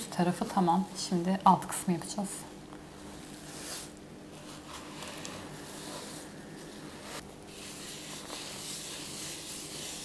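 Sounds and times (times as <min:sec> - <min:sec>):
low steady hum: 0:00.0 - 0:10.0
salt rubbed over raw meat: 0:07.6 - 0:10.0.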